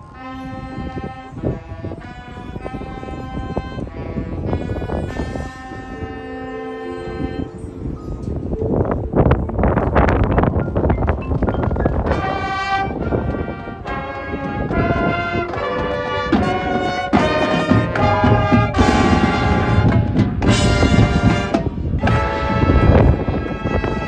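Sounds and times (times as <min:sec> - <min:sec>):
brass section playing held chords: 0:00.0 - 0:08.0, 0:12.0 - 0:24.0.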